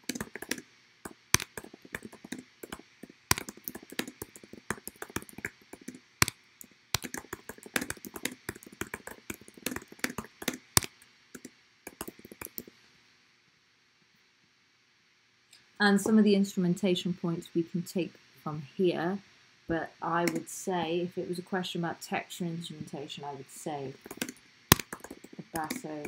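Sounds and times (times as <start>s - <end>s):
keyboard typing clicks: 0.0s - 6.4s, 7.0s - 12.7s, 20.2s - 20.5s, 23.9s - 26.0s.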